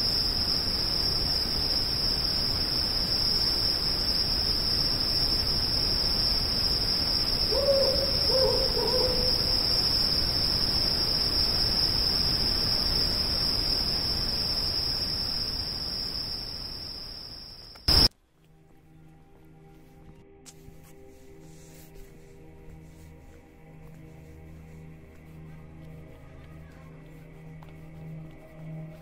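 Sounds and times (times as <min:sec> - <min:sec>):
high insect trill: 0:00.0 - 0:18.1
owl hooting: 0:05.0 - 0:12.4.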